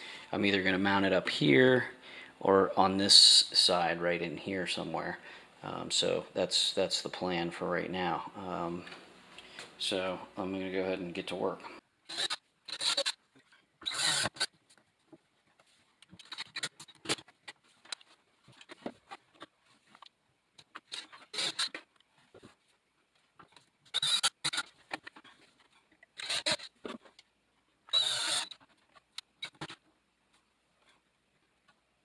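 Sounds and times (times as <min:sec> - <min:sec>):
short scratchy bursts: 0:12.1 - 0:13.2, 0:13.8 - 0:14.5, 0:20.7 - 0:21.9, 0:23.9 - 0:25.2, 0:26.2 - 0:27.0, 0:27.9 - 0:29.8.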